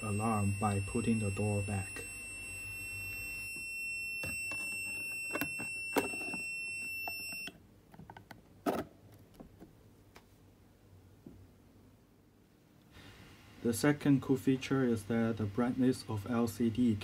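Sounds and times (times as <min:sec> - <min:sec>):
fridge alarm beep: 0:00.0 - 0:07.5.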